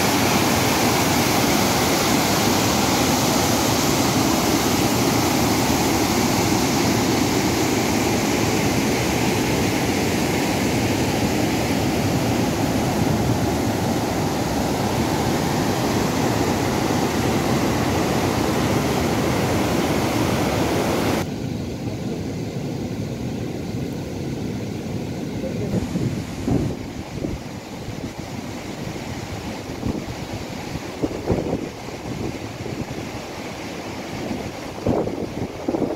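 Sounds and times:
water rushing over rocks: 0.0 - 21.3.

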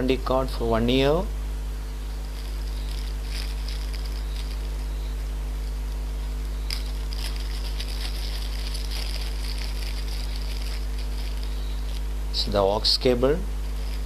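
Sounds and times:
steady low hum: 0.0 - 14.0
plastic bag crinkling: 2.3 - 5.0, 6.6 - 12.2, 13.6 - 14.0.

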